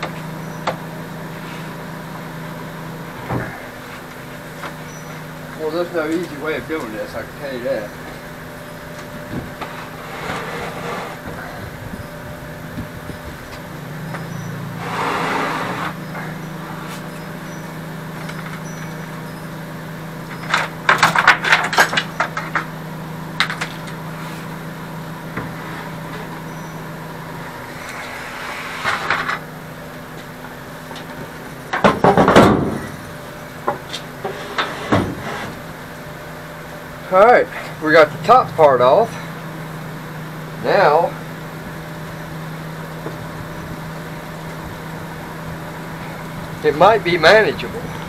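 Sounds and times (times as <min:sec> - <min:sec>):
steady low hum: 0:00.0 - 0:48.0
cabinet knocking and scraping: 0:34.3 - 0:35.5.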